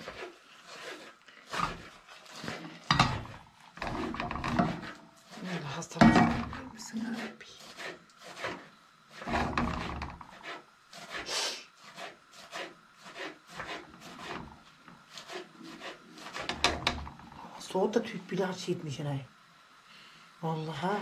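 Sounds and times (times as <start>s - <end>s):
metal spoon scraping frying pan: 0.0s - 11.2s, 11.9s - 17.4s.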